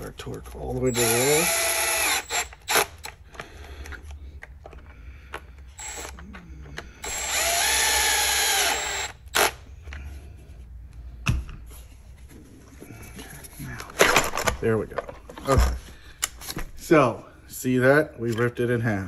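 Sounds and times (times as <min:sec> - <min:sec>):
electric drill motor: 0:00.9 - 0:03.2, 0:05.8 - 0:06.2, 0:07.0 - 0:09.7.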